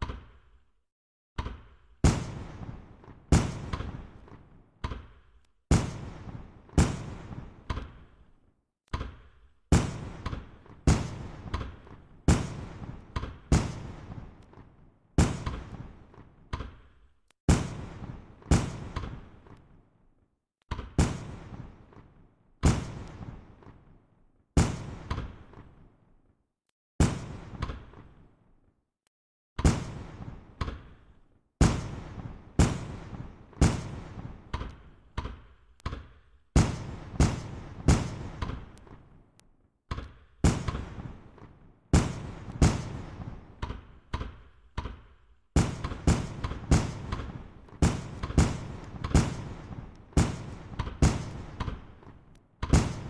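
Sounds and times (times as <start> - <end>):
fireworks bursting: 2.0 - 8.2, 9.7 - 16.9, 17.5 - 19.8, 20.8 - 24.0, 24.6 - 25.9, 27.0 - 28.4, 29.6 - 35.6, 36.6 - 39.2, 40.4 - 44.0, 44.9 - 53.0.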